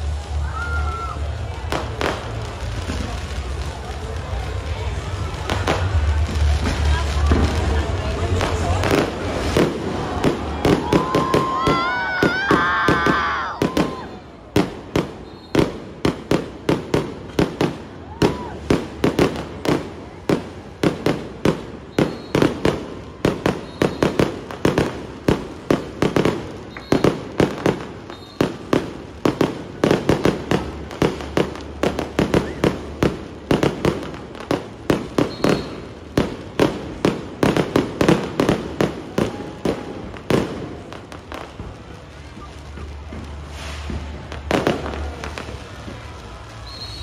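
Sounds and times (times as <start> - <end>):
fireworks bangs: 0.0 - 47.0
firework whistles: 8.4 - 16.5, 21.5 - 25.4, 26.1 - 28.9, 32.0 - 34.0, 35.0 - 36.0, 42.2 - 47.0.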